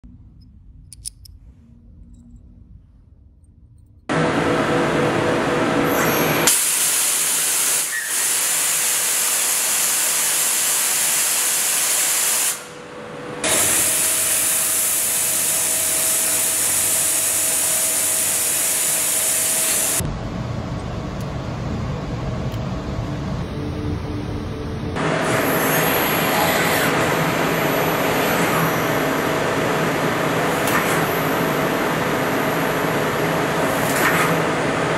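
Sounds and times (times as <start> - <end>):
milling machine cutting steel: 13.4 - 20.0, 25.0 - 34.9
faint machine whine: 19.6 - 33.8.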